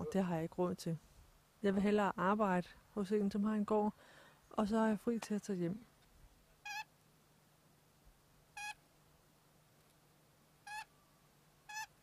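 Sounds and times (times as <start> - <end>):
parrot chirping: 6.6 - 6.9, 8.6 - 8.8, 10.6 - 11.0, 11.7 - 12.0.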